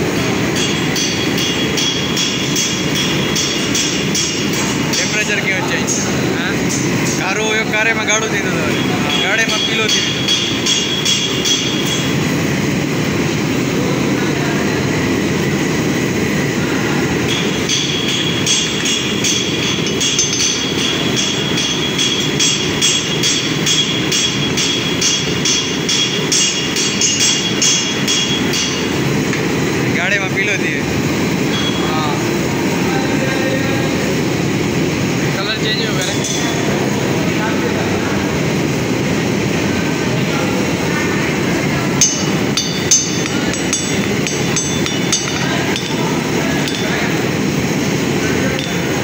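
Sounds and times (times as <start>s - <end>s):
hammer striking metal: 0.0s - 6.0s, 8.5s - 12.3s, 17.2s - 29.5s, 36.0s - 36.7s, 41.9s - 47.2s, 48.5s - 49.0s
gas torch burner roaring: 0.0s - 49.0s.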